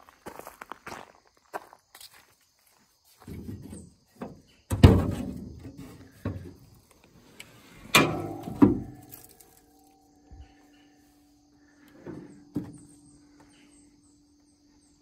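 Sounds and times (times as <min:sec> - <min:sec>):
metal car hood clunking: 0:07.8 - 0:09.5.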